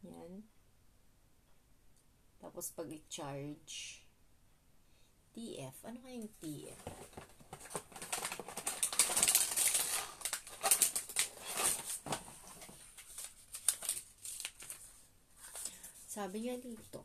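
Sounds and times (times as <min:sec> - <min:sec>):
cardboard box rustling and scraping: 0:06.7 - 0:13.0.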